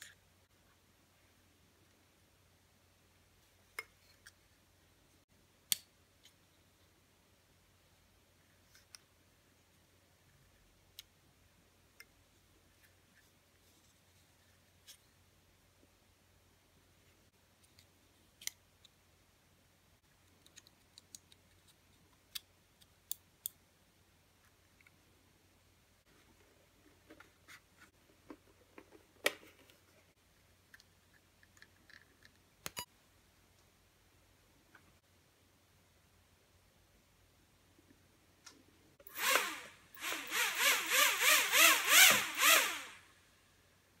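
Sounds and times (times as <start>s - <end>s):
small plastic parts clicking: 20.2s - 23.6s
drone motors whining: 39.2s - 43.0s.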